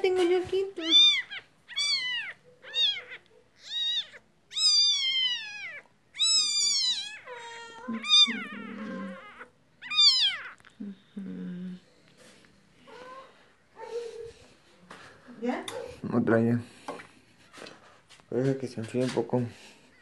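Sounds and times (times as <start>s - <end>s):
kitten mewing: 0.9s - 11.1s.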